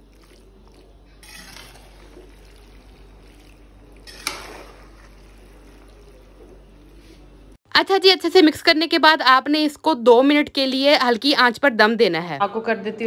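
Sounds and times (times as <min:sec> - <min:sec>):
spoon stirring pasta in a pot: 0:00.0 - 0:07.4.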